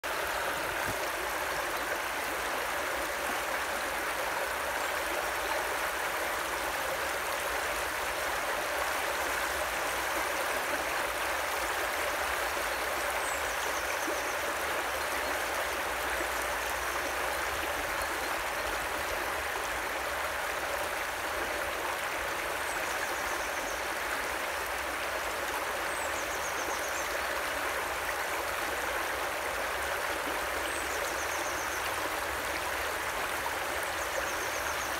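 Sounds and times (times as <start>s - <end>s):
river water rushing and trickling: 0.0s - 34.9s.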